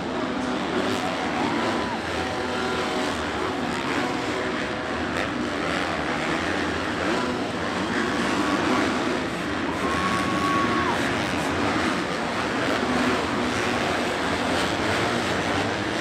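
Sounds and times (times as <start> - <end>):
dirt bike engines revving: 0.0 - 16.0.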